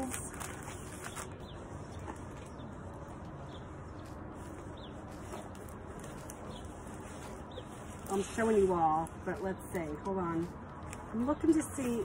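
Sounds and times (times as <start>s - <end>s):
canvas rustling unrolled on table: 0.0s - 1.4s.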